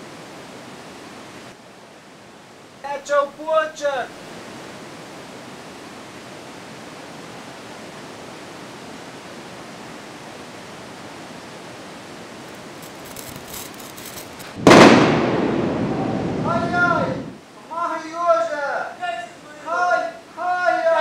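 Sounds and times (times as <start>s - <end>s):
fuse sputtering and crackling: 12.5s - 14.6s
loud rumbling explosion: 14.5s - 17.4s.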